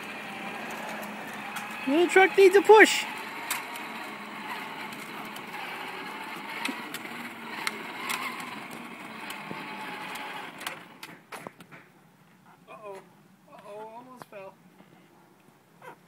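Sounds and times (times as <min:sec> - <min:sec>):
plastic wheels rolling on asphalt: 0:00.0 - 0:11.9.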